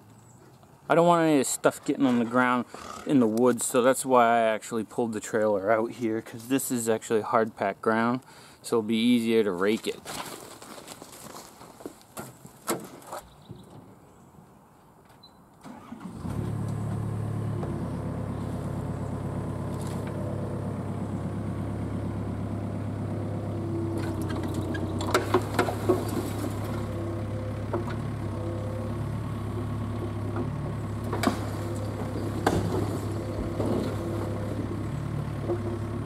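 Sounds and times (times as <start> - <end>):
junk dropping into metal truck bed: 10.1 - 13.2, 24.0 - 26.9, 31.0 - 34.5
excavator diesel engine running: 16.1 - 36.0.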